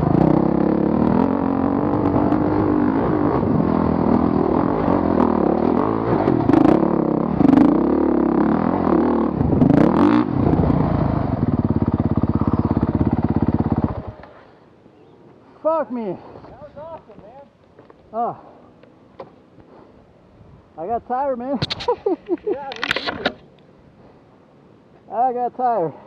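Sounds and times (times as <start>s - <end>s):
motorcycle engine revving: 0.0s - 14.5s.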